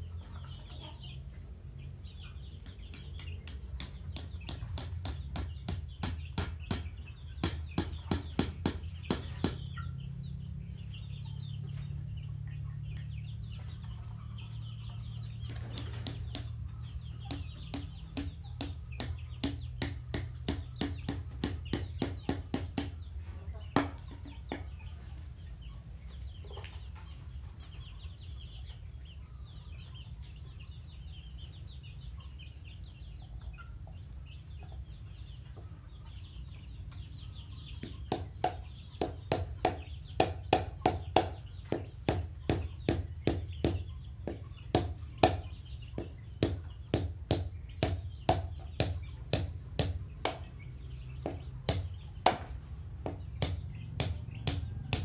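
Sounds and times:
young chickens cheeping: 0.0 - 55.0
hammer striking bamboo: 17.3 - 23.0, 51.2 - 55.0.

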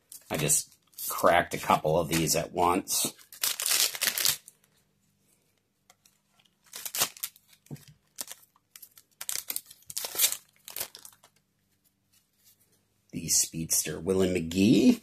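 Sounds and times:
paper wrappers crinkling and tearing: 0.3 - 4.6, 6.6 - 11.3.

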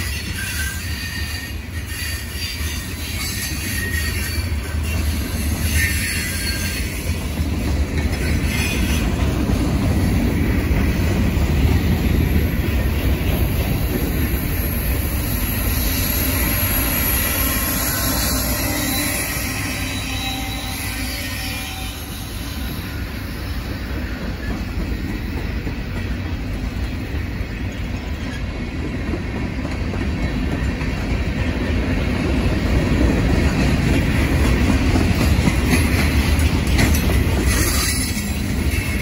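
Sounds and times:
high wheel squeal: 0.0 - 7.1, 15.5 - 23.6, 37.4 - 39.0
train wheels rumbling on rails: 0.0 - 39.0.

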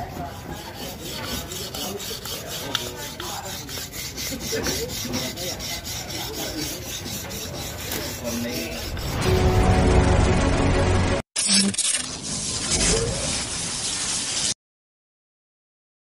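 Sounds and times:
knife sharpening on whetstone: 0.0 - 9.2.

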